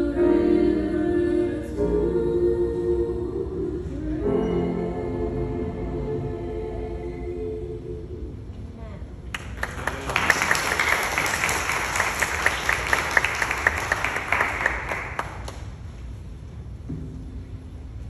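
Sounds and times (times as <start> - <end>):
congregation applauding: 9.3 - 15.8.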